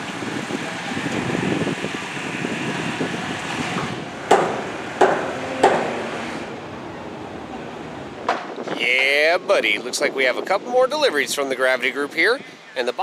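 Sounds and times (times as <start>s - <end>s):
wind hiss: 0.0s - 10.4s
hammer blows on wood: 3.7s - 6.5s.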